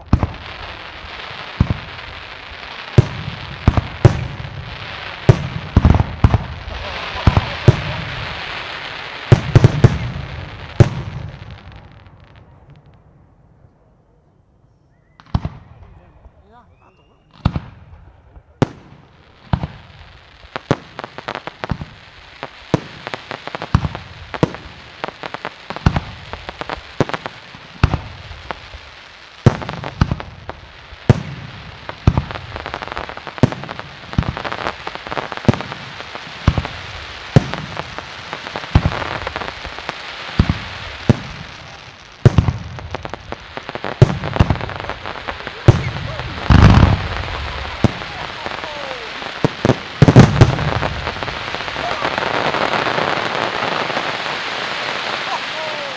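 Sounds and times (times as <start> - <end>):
firework hiss: 0.0 - 12.4, 18.6 - 55.9
firework shells bursting: 35.4 - 55.9.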